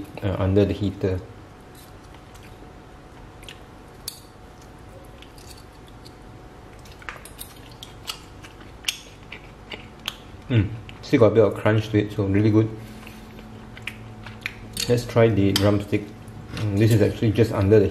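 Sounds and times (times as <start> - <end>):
crunching while chewing: 1.6 - 11.1, 12.8 - 15.0.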